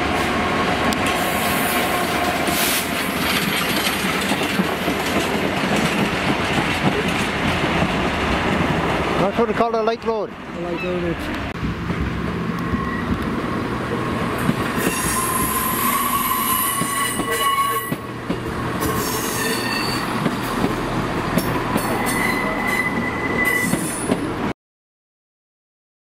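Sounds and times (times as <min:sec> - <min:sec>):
rail noise: 0:00.0 - 0:24.6
train wheels squealing: 0:12.7 - 0:13.2, 0:14.8 - 0:18.0, 0:19.0 - 0:20.2, 0:21.8 - 0:24.2.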